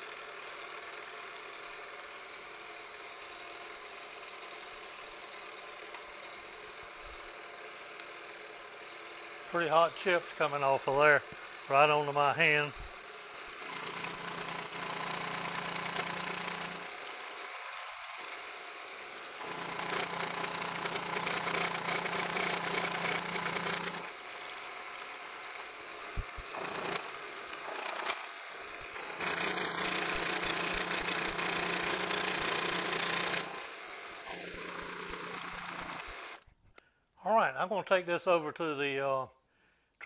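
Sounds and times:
milling machine cutting: 0.8s - 36.4s
sharp clicks: 26.1s - 27.1s.

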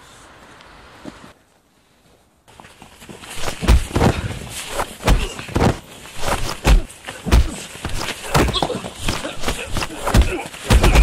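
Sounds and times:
heavy thuds of blows: 3.4s - 11.0s.

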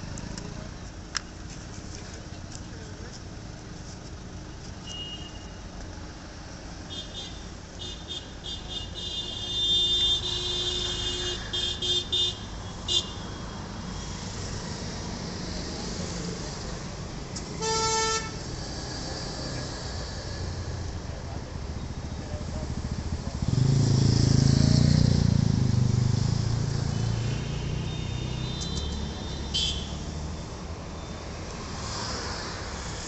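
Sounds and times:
traffic rumble: 0.0s - 33.0s
vehicle horns honking: 4.8s - 5.6s, 6.9s - 13.4s, 17.5s - 18.5s, 26.8s - 30.0s.

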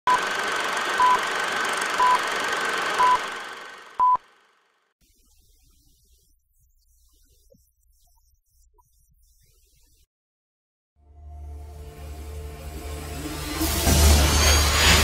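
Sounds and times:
short beeps: 4.0s - 4.2s.

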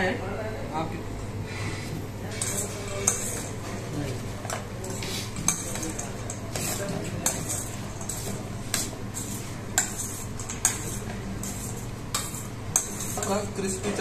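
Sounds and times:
metal spoon scraping a bowl: 2.3s - 3.6s, 4.8s - 14.0s.

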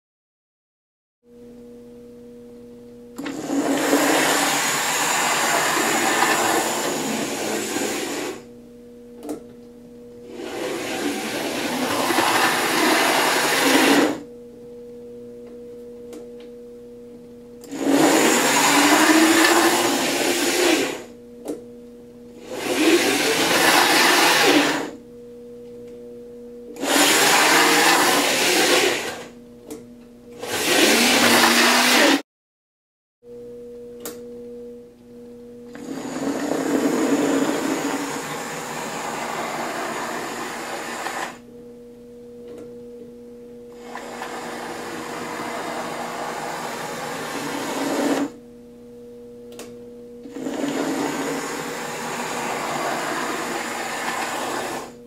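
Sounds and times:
steady low hum: 1.3s - 23.8s, 24.7s - 26.9s, 28.9s - 30.4s, 33.3s - 55.0s
model train motor whirring: 10.5s - 14.2s, 17.7s - 21.0s, 22.5s - 24.9s, 26.8s - 29.3s, 50.4s - 54.9s.

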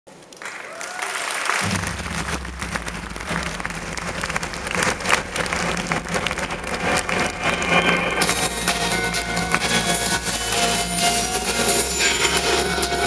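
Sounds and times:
audience applauding: 0.1s - 13.0s
low rumble: 1.6s - 11.7s.

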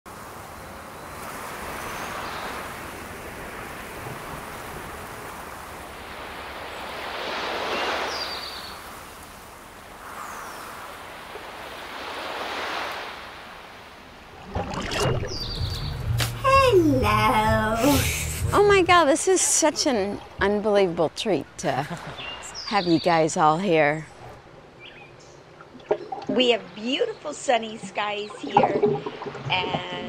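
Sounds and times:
surf washing on beach: 0.1s - 15.6s, 16.2s - 24.4s.

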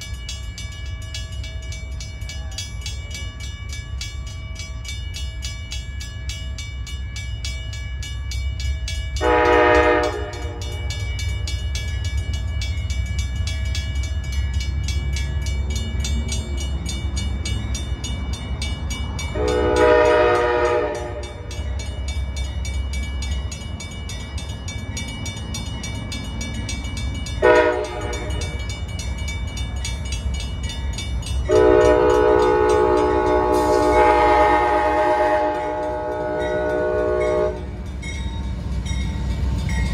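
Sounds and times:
train rumble: 0.0s - 39.9s
train air horn blasts: 9.2s - 10.7s, 19.4s - 21.4s, 27.4s - 28.5s, 31.5s - 37.7s.

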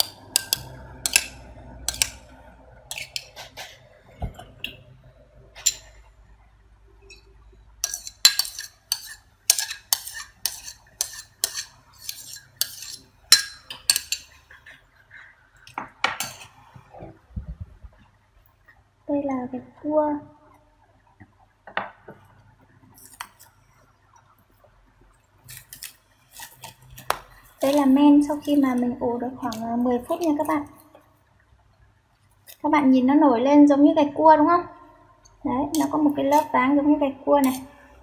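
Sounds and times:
metal spoon clinking ceramic bowl: 0.0s - 2.2s, 7.1s - 14.4s.

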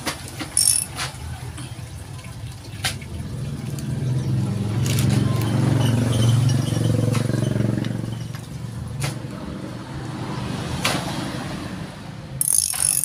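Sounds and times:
sharp metallic clicks: 0.5s - 1.1s, 12.4s - 13.0s
vehicle engine passing by: 3.0s - 12.4s.

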